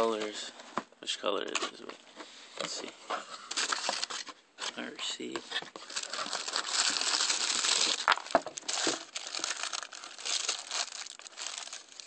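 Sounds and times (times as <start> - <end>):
tissue paper rustling: 5.8 - 12.0.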